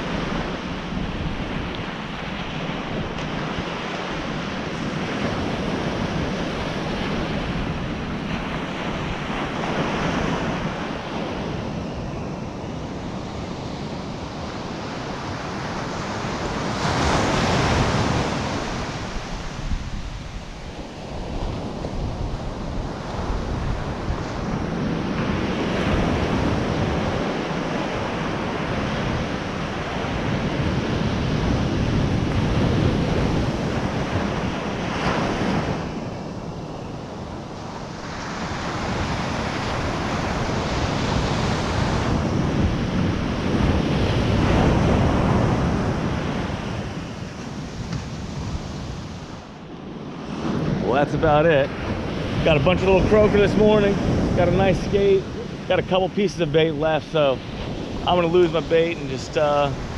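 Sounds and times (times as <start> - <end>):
ocean surf breaking on beach: 0.0 - 59.9
wind buffeting microphone: 0.0 - 59.9.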